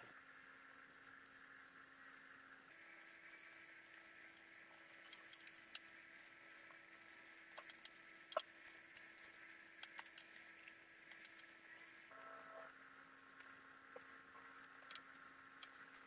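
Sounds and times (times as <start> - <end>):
faint steady hum: 0.0 - 16.0
brush clicks and scratching: 4.8 - 11.6, 13.4 - 16.0.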